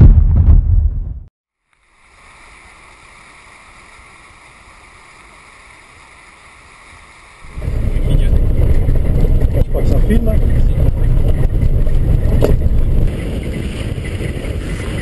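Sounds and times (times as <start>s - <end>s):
deep boom: 0.0s - 1.3s, 7.5s - 13.1s
stream rushing over stones: 1.8s - 7.9s.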